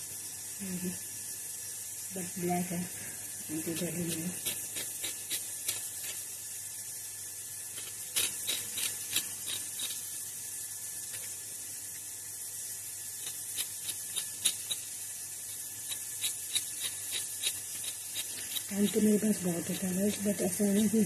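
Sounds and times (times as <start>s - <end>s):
steady high hiss: 0.0s - 21.0s
knife cutting vegetable: 3.5s - 6.2s, 7.8s - 10.0s, 15.8s - 21.0s.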